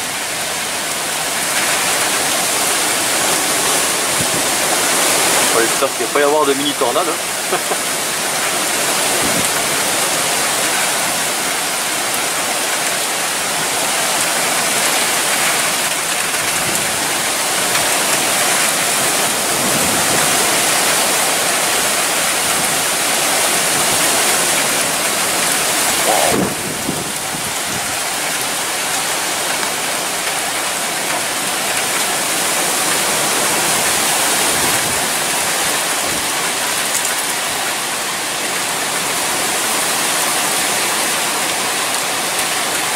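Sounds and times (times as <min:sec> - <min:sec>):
rain: 0:00.0 - 0:42.9
gusting wind: 0:25.4 - 0:28.0.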